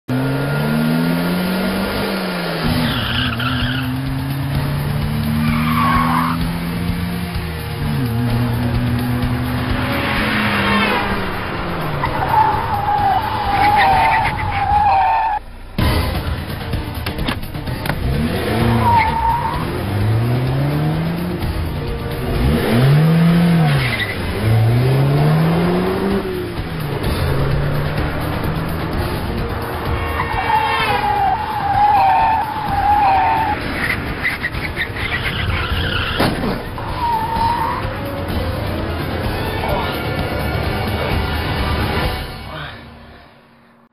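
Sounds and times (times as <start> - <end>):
car engines running hard: 0.1 - 42.8
background music: 0.1 - 43.9
tyre squeals: 5.4 - 6.4, 12.0 - 15.4, 30.1 - 37.9.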